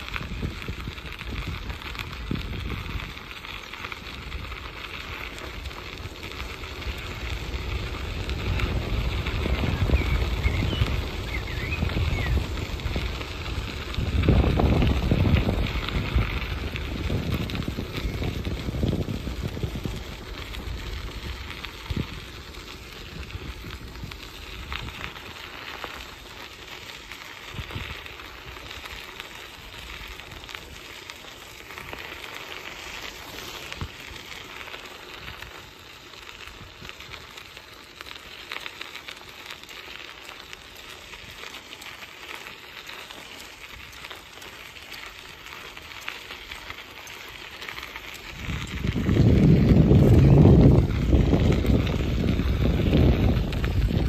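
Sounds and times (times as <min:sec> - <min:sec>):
wind buffeting microphone: 0:00.0 - 0:32.0, 0:43.5 - 0:54.0
bicycle tyres rolling on gravel: 0:00.0 - 0:54.0.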